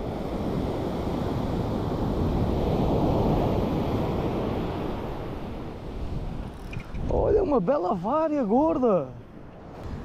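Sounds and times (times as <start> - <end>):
sea surf rushing: 0.0 - 10.0.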